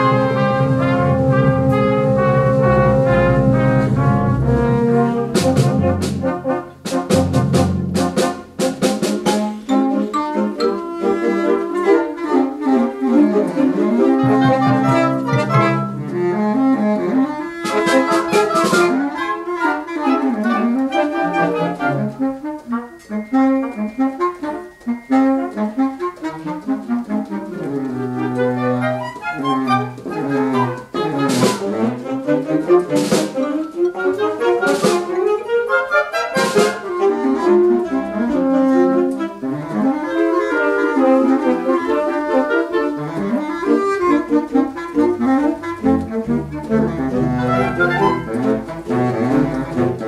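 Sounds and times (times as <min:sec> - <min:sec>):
sharp percussion strokes: 0:00.0 - 0:10.8
wind band playing: 0:00.0 - 0:50.0.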